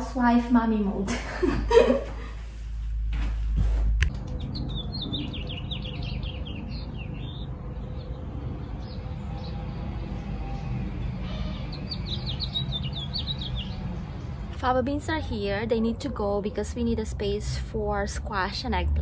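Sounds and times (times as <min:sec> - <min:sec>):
outdoor background noise: 0:00.0 - 0:19.0
songbird chirping: 0:04.1 - 0:16.6.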